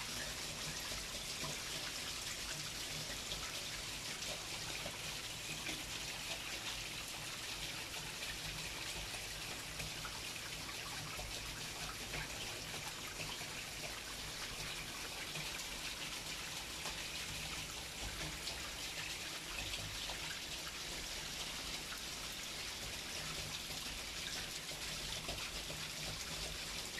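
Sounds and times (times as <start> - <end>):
steady rain falling: 0.0 - 26.9.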